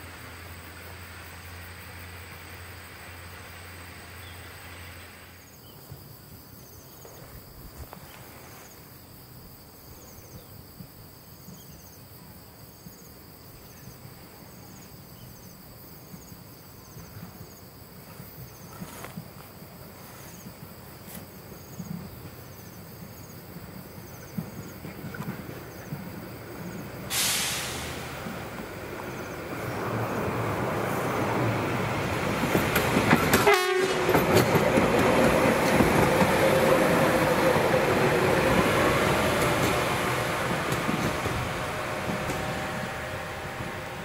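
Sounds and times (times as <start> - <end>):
insects chirping: 0.0 - 44.0
rail vehicle rumbling: 0.0 - 44.0
diesel locomotive humming: 23.4 - 44.0.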